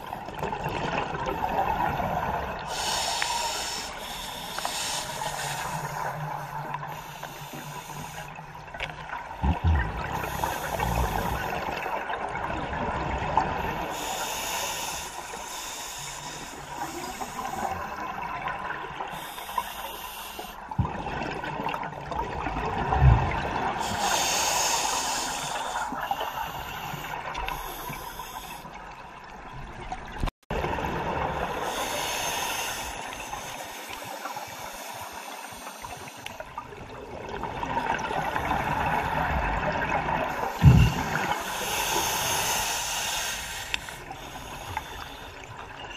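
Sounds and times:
watery background: 0:00.0 - 0:45.9
regulator breathing hiss: 0:02.7 - 0:08.4, 0:10.2 - 0:11.8, 0:13.8 - 0:18.1, 0:19.1 - 0:20.6, 0:23.8 - 0:28.7, 0:31.6 - 0:36.6, 0:40.3 - 0:45.5
exhaled bubbles gushing: 0:09.0 - 0:13.9, 0:20.8 - 0:24.2.

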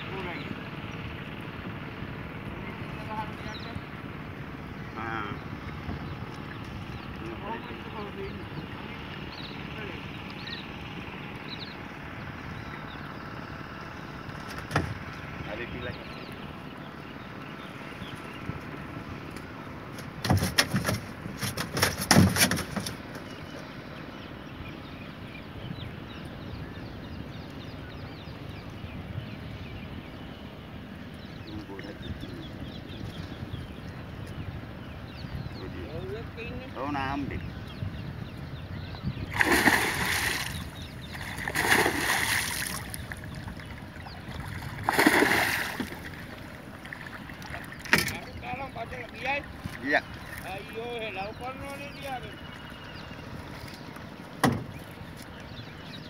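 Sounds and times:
gill net knocking and rattling: 0:20.2 - 0:23.3, 0:47.5 - 0:48.3
water splashing hard: 0:39.2 - 0:50.8.

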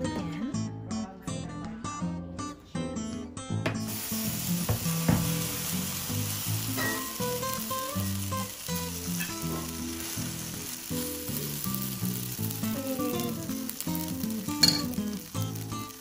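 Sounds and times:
background music: 0:00.0 - 0:16.0
batter sizzling in a skillet: 0:03.9 - 0:16.0.

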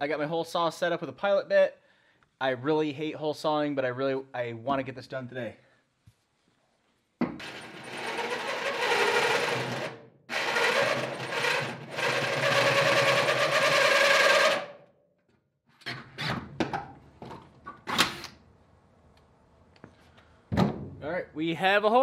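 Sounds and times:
drill cutting through steel: 0:07.4 - 0:14.8.

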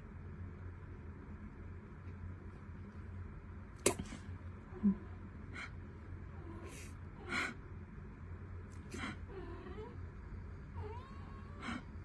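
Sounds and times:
kitten breathy sounds: 0:08.8 - 0:10.0, 0:10.8 - 0:12.0.

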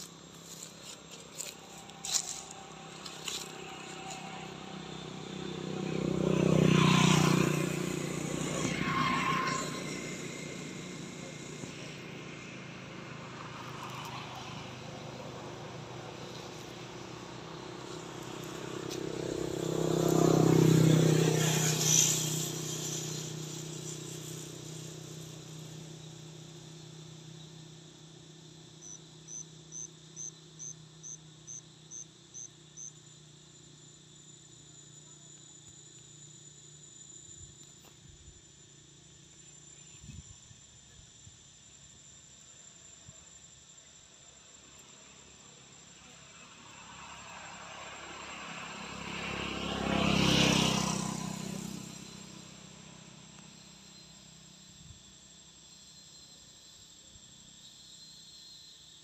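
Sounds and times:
vehicle passing: 0:00.0 - 0:24.4
faint high whine: 0:00.0 - 0:59.0.

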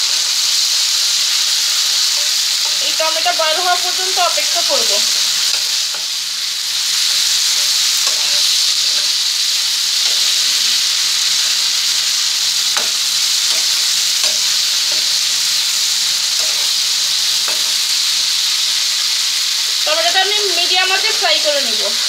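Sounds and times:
vegetables sizzling in a frying pan: 0:00.0 - 0:22.0
spatula scraping a pan: 0:04.3 - 0:09.2, 0:12.6 - 0:15.5, 0:16.3 - 0:17.9.

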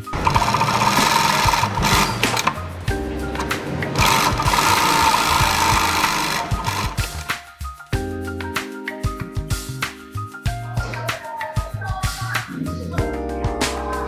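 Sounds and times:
sewing machine stitching: 0:00.0 - 0:02.6, 0:04.0 - 0:07.3
background music: 0:00.0 - 0:14.0.

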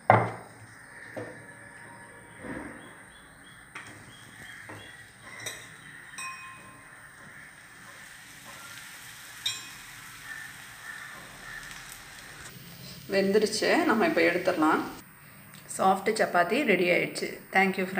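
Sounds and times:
kitchen utensils knocking and clinking: 0:04.7 - 0:07.4
faint steady hiss: 0:07.9 - 0:17.9.

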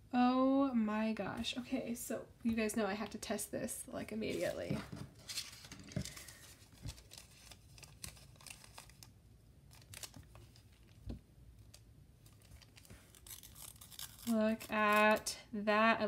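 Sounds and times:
paper rustling and scraping: 0:04.2 - 0:09.1.

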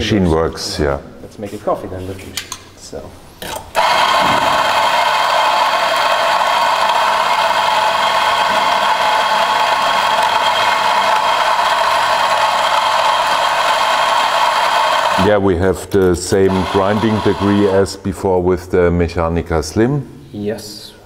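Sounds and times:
coffee grinder running: 0:03.8 - 0:15.3, 0:16.4 - 0:17.8.

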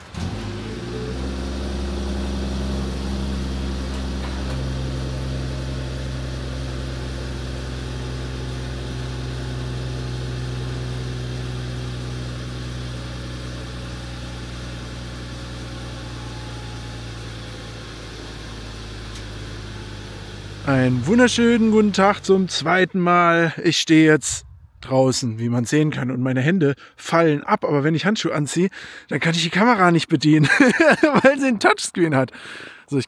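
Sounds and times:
car engine idling: 0:00.0 - 0:23.2.

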